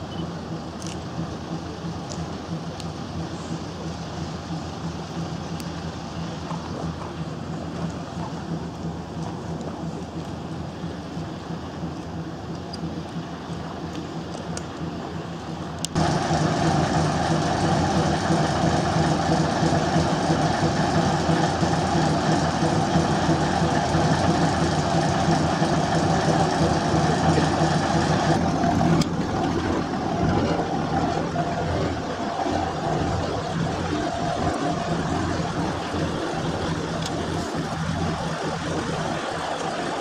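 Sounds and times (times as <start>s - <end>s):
diesel engine idling: 0.0s - 40.0s.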